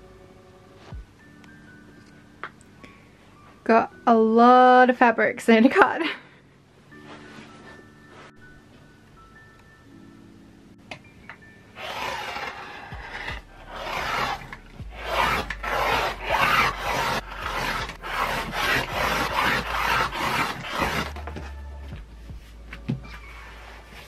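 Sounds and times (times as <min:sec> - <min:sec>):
rotary cutter rolling through fabric: 0:11.8 - 0:21.2.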